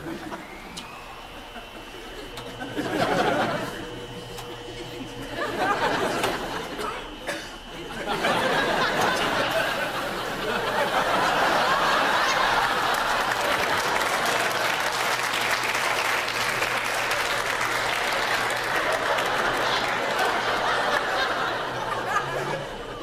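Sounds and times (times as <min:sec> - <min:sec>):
audience laughing: 0:00.0 - 0:23.0
audience applauding: 0:07.7 - 0:23.0.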